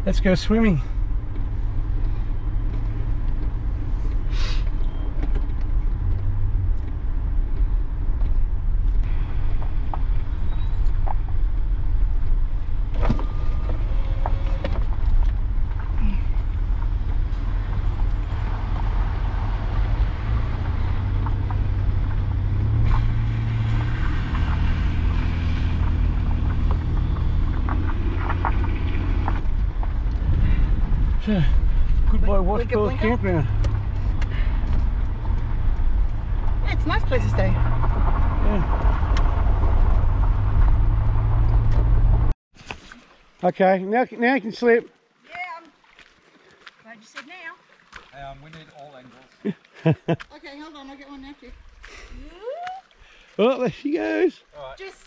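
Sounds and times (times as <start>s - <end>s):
engine and tyre rumble: 0.0s - 42.4s
knocks and rattles over bumps: 0.0s - 42.4s
splashing water: 42.5s - 55.0s.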